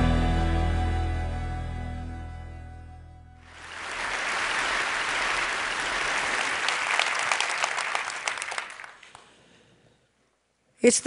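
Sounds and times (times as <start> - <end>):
audience applauding: 3.4 - 9.3.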